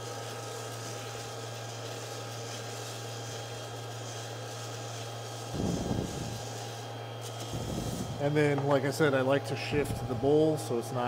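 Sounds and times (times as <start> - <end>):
coffee beans rustling in bowl: 0.0 - 8.3
coffee roaster fan humming: 0.0 - 11.0.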